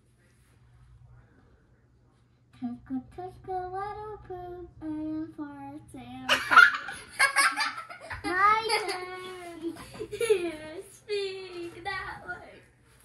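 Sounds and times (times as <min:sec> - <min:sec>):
child singing: 0:08.2 - 0:12.4.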